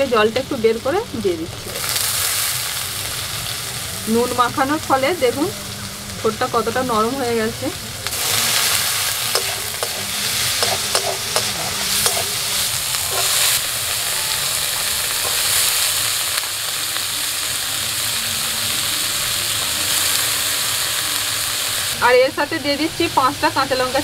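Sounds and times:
food sizzling in oil: 0:00.0 - 0:24.0
metal spatula scraping a pan: 0:08.2 - 0:13.6.

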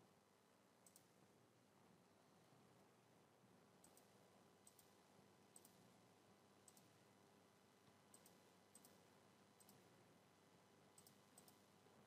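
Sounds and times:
computer mouse clicks: 0:00.8 - 0:01.1, 0:03.8 - 0:05.9, 0:06.6 - 0:07.0, 0:08.1 - 0:09.9, 0:10.9 - 0:11.7.

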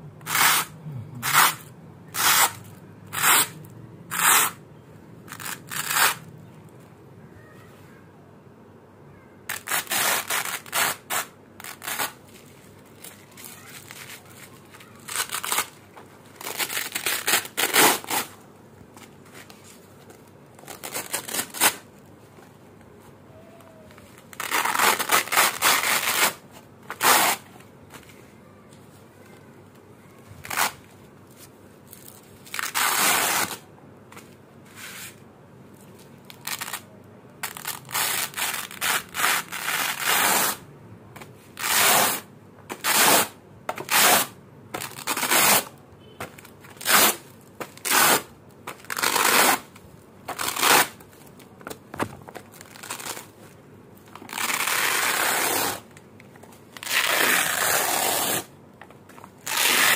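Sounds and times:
velcro strips ripping apart: 0:00.2 - 0:04.6, 0:05.3 - 0:06.3, 0:09.5 - 0:12.2, 0:13.0 - 0:18.4, 0:20.6 - 0:21.8, 0:24.1 - 0:27.4, 0:30.4 - 0:30.8, 0:31.9 - 0:33.6, 0:36.2 - 0:40.6, 0:41.6 - 0:45.7, 0:46.7 - 0:51.0, 0:52.5 - 0:53.4, 0:54.1 - 0:55.9, 0:56.7 - 0:58.5, 0:59.4 - 0:59.9.

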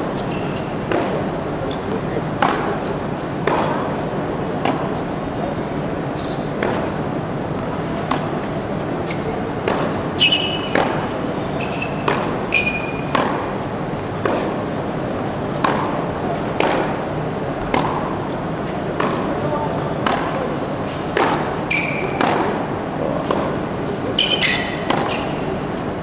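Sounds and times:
murmur of large hall: 0:00.0 - 0:26.0
shoe squeaks on court: 0:00.1 - 0:00.8, 0:10.2 - 0:10.7, 0:11.4 - 0:13.1, 0:21.7 - 0:22.2, 0:24.2 - 0:25.4
tennis balls struck and bouncing: 0:00.1 - 0:05.6, 0:06.2 - 0:26.0.

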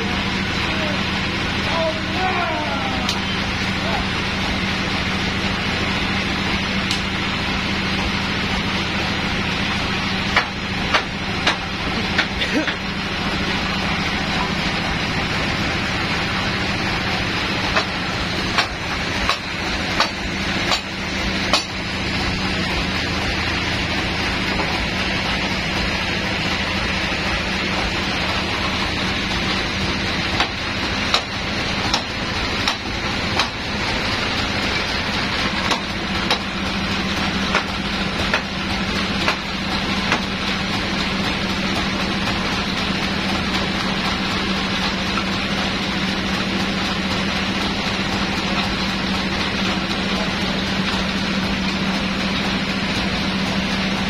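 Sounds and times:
sawmill motor humming: 0:00.0 - 0:54.0.

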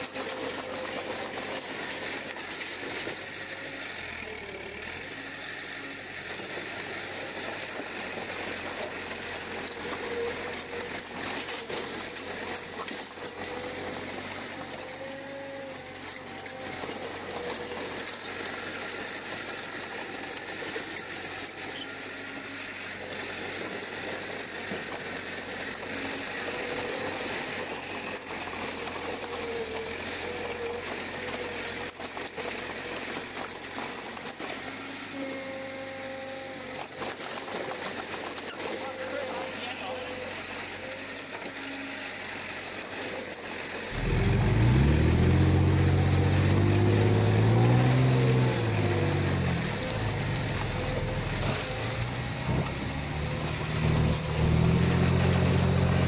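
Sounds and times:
rattle of metallic clicks: 0:00.0 - 0:05.2, 0:06.2 - 0:22.2
bulldozer diesel engine running: 0:00.0 - 0:56.0.

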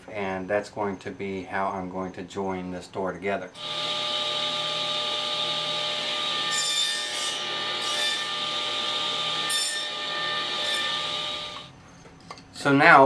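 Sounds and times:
saw blade cutting wood: 0:03.6 - 0:11.7
table saw motor hum: 0:03.6 - 0:11.7.

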